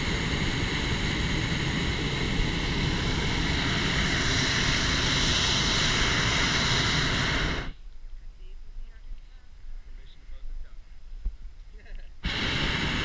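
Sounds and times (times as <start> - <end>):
propane burner blast: 0.0 - 7.8, 12.2 - 13.0.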